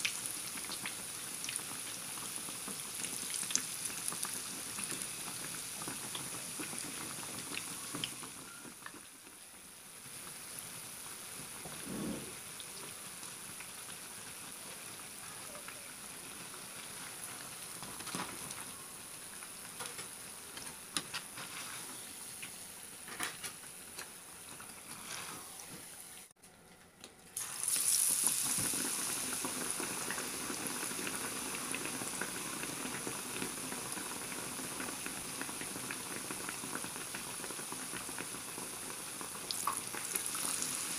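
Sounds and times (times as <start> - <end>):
deep-frying sizzle in oil: 0.0 - 26.3, 27.4 - 40.9.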